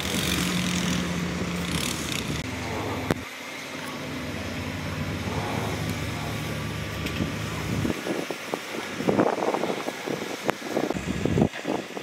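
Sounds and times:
heavy diesel engine running: 0:00.0 - 0:11.6.

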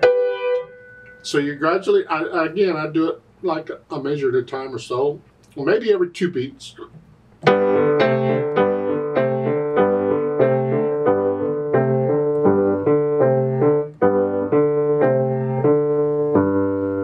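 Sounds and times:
grand piano chords: 0:00.0 - 0:01.9, 0:07.4 - 0:17.0.

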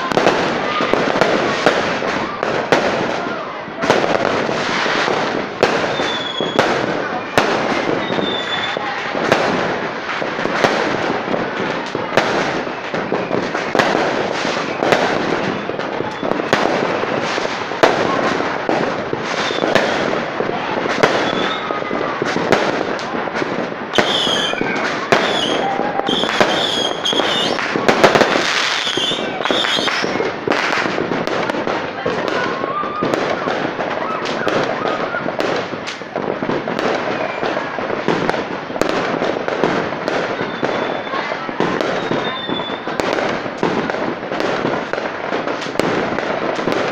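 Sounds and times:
fireworks bangs and crackling: 0:00.0 - 0:46.9
high whistling fireworks: 0:00.0 - 0:46.9.

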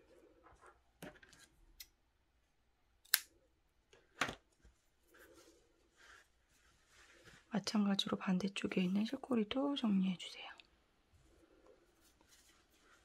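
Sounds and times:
yarn and fabric rustling: 0:04.5 - 0:10.1, 0:11.0 - 0:13.0.

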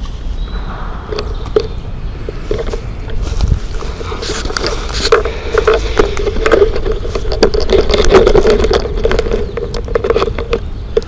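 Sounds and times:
camera handling rubbing on microphone: 0:02.6 - 0:10.6
small clicks and knocks: 0:03.8 - 0:11.0.

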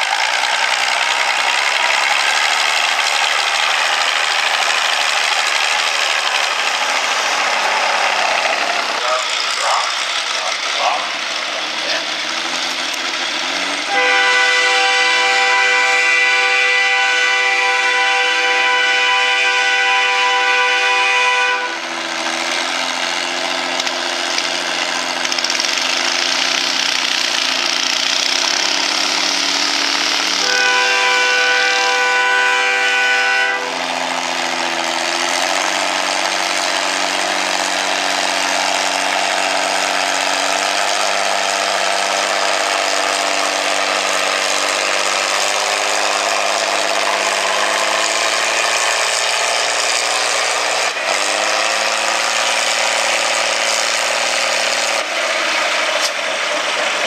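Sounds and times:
tractor engine at full throttle: 0:00.0 - 0:57.0
loud steady high tone: 0:30.2 - 0:34.0.

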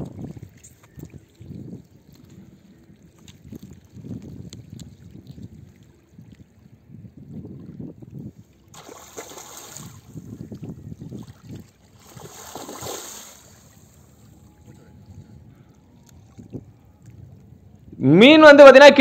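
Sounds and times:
wind rumbling on microphone: 0:00.0 - 0:18.8
fish splashing in water: 0:08.7 - 0:10.3, 0:11.1 - 0:14.0.

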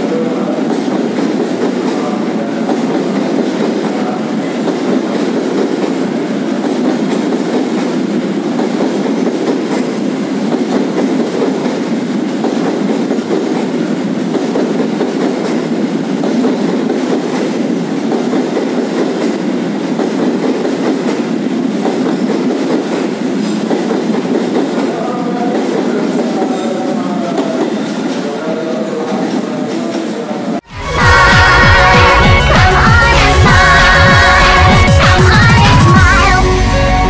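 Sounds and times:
freight train rumbling on rails: 0:00.0 - 0:37.0.

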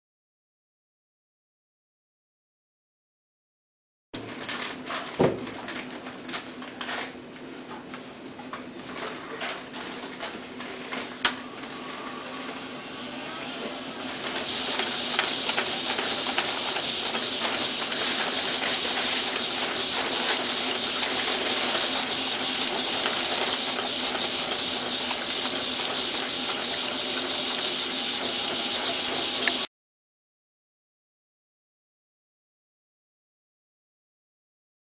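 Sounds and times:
envelopes rattling through rollers: 0:08.7 - 0:12.7, 0:13.6 - 0:29.7
envelope sealer motor humming: 0:10.0 - 0:29.7.

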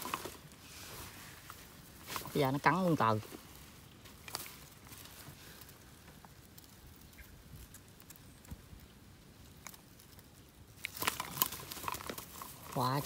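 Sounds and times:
clicks and rustling: 0:09.5 - 0:13.0.

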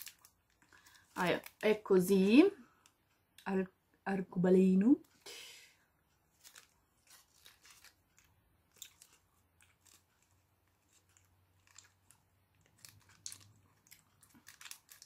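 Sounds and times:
person chewing gummy candy: 0:06.3 - 0:15.0.

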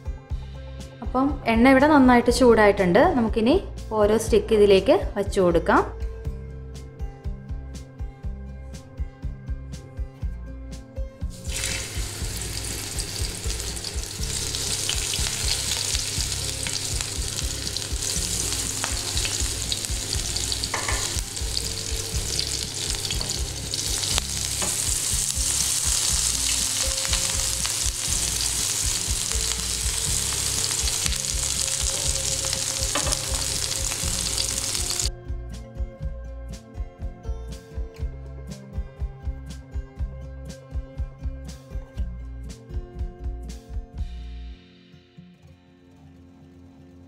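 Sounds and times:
background music: 0:00.0 - 0:47.0
food sizzling in hot oil: 0:11.3 - 0:35.1.

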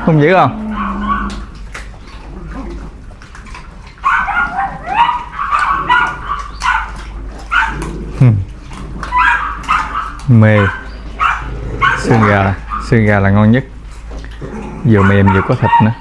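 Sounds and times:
dogs yipping and whining: 0:00.5 - 0:13.0, 0:13.8 - 0:16.0
dog yelp: 0:00.6 - 0:01.5, 0:04.0 - 0:07.8, 0:09.0 - 0:13.0, 0:15.0 - 0:16.0.

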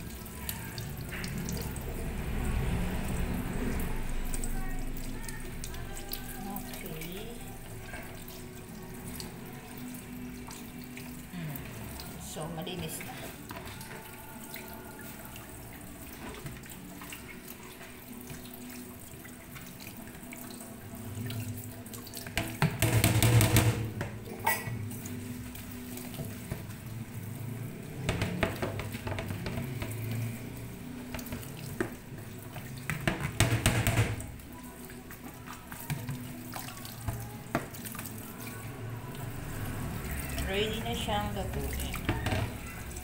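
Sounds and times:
water splashing in colander: 0:00.0 - 0:43.0
tap running into steel sink: 0:22.2 - 0:24.7, 0:28.0 - 0:30.2, 0:31.1 - 0:34.4.

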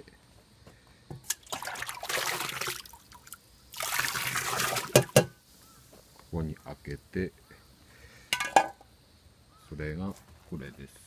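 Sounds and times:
slurry splashing and trickling: 0:01.3 - 0:05.3
metal ladle knock: 0:05.0 - 0:05.4, 0:08.4 - 0:08.8.

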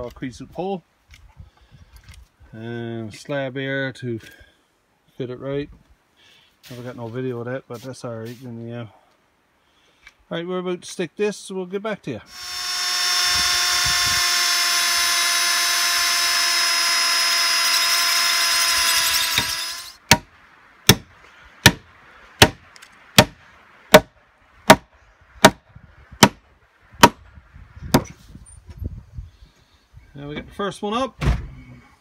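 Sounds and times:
electric drill boring into wood: 0:12.3 - 0:20.0
hammer striking a spike: 0:20.1 - 0:20.3, 0:20.9 - 0:21.8, 0:22.4 - 0:22.6.

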